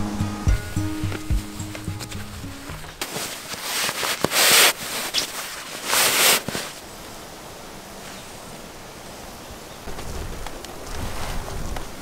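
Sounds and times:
sleeping bag fabric rustling: 0:01.0 - 0:06.8.

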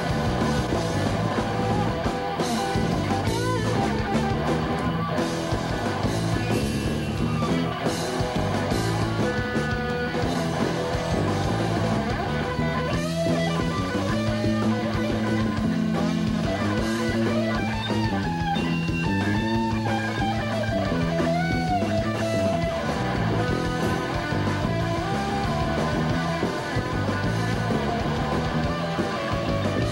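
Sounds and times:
bass: 0:00.0 - 0:29.9
drum kit: 0:00.0 - 0:29.9
electric guitar lead lines: 0:00.0 - 0:29.9.

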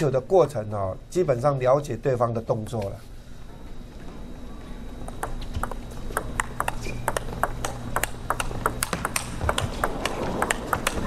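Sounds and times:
steady low hum: 0:00.0 - 0:11.0
table tennis ball clicking: 0:05.1 - 0:11.0.

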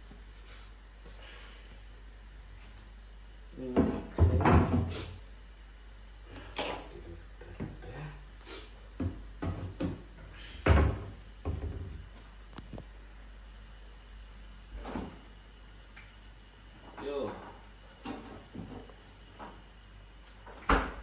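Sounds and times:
knocks and thuds of objects: 0:03.7 - 0:05.0, 0:09.0 - 0:12.0
cupboard doors opening and shutting: 0:03.7 - 0:05.2, 0:09.0 - 0:12.1, 0:20.4 - 0:21.0.

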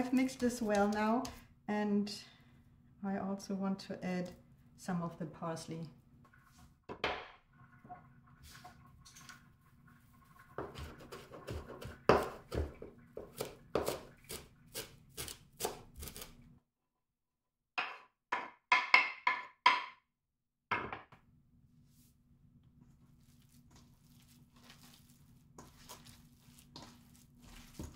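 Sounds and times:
knife chopping on wooden board: 0:10.7 - 0:16.3.

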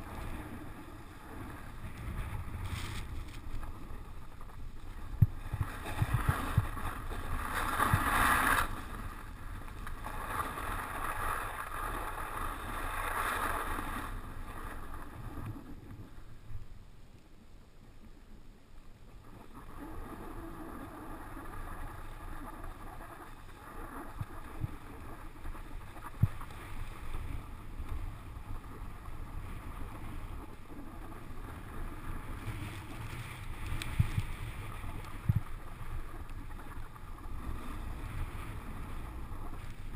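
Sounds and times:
wind rumble on microphone: 0:00.0 - 0:17.0, 0:19.1 - 0:39.9.

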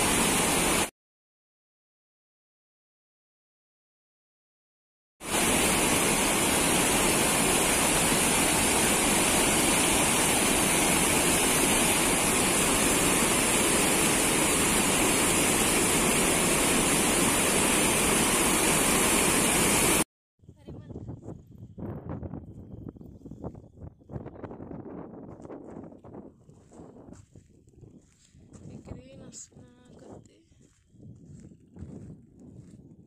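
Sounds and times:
water rushing over weir: 0:00.0 - 0:00.9, 0:05.2 - 0:20.0.

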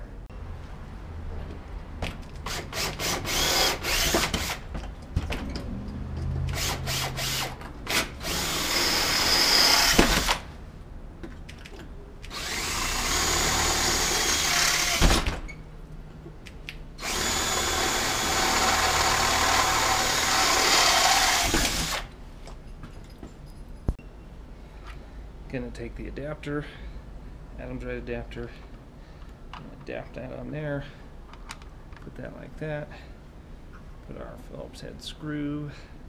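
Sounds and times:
cordless drill boring into metal: 0:02.4 - 0:04.6, 0:06.5 - 0:10.4, 0:12.3 - 0:15.2, 0:17.0 - 0:22.1.

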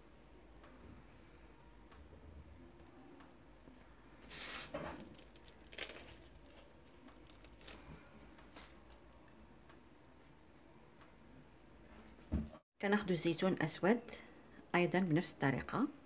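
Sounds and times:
foil rustling and crinkling: 0:04.3 - 0:08.0.

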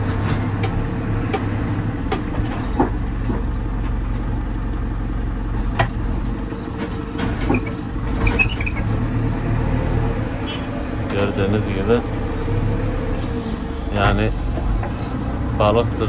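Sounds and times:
diesel engine running: 0:00.0 - 0:16.0
short high squeaks and clicks: 0:06.8 - 0:08.9.

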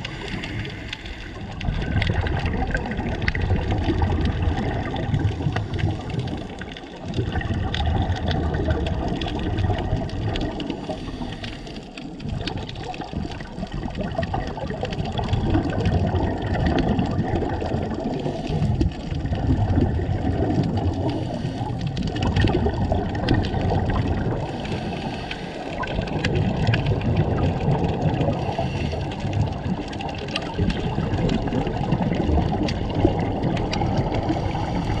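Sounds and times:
muffled underwater rushing water: 0:00.0 - 0:35.0.

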